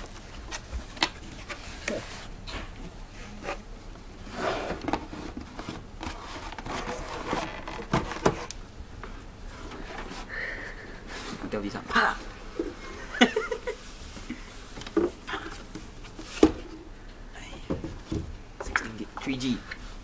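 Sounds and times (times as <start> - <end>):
cardboard flaps rustling and scraping: 4.2 - 8.5.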